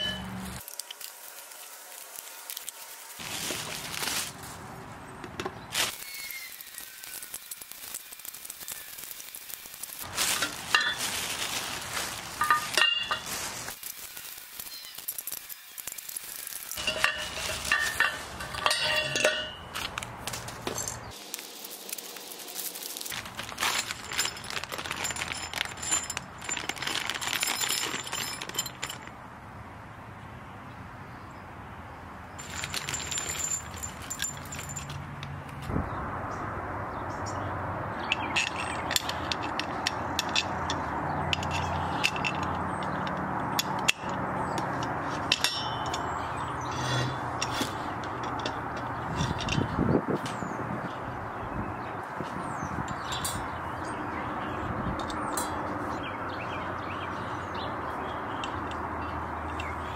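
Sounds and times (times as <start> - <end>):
metal bolts and nuts clinking: 0.0 - 0.4, 10.1 - 11.2, 12.4 - 29.2, 32.4 - 35.2, 38.1 - 50.4, 52.8 - 54.0, 55.0 - 55.9, 58.3 - 59.9
plastic packaging crinkling: 0.6 - 4.7, 5.7 - 18.0, 19.8 - 29.0, 32.4 - 34.4.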